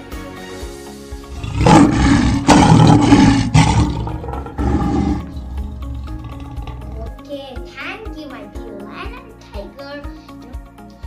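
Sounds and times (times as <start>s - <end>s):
big cat roaring: 1.3s - 7.2s.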